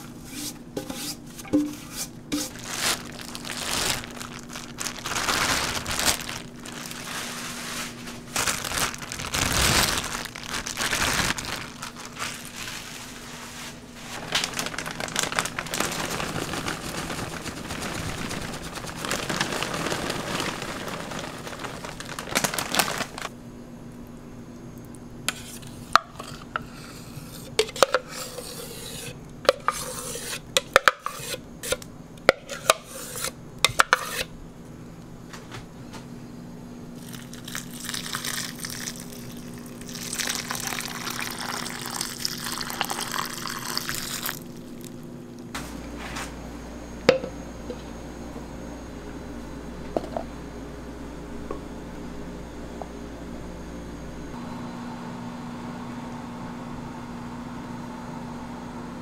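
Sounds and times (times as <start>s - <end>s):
plastic bag crinkling: 2.4s - 23.3s, 37.0s - 44.9s.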